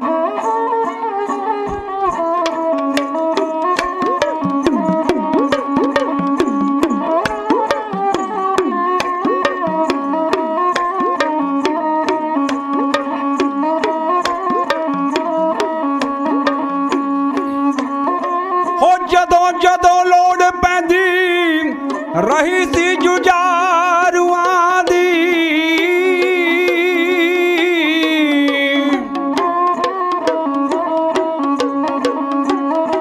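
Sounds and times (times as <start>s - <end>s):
hand drum strokes: 1.6s - 18.9s, 21.7s - 33.0s
held melody notes: 2.7s - 18.4s.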